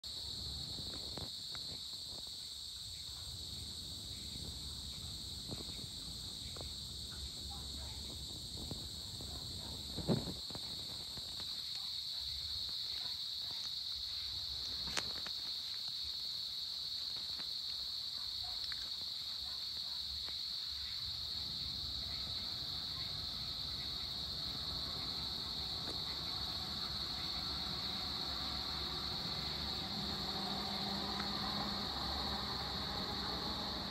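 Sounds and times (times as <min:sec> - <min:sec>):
insect chorus trilling: 0:00.0 - 0:33.9.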